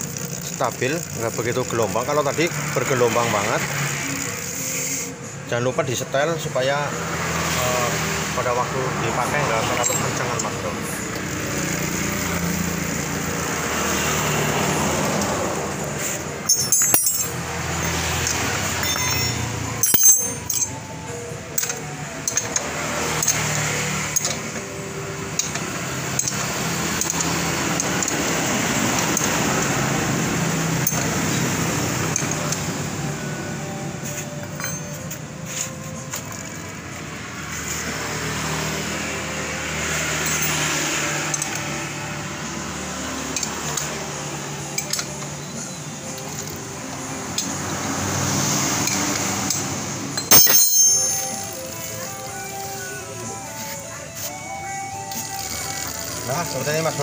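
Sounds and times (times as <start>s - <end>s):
chain running over sprockets: 0.0s - 2.0s, 16.5s - 18.0s
sharp metal clinks: 16.4s - 20.9s, 34.6s - 35.2s, 50.2s - 52.1s.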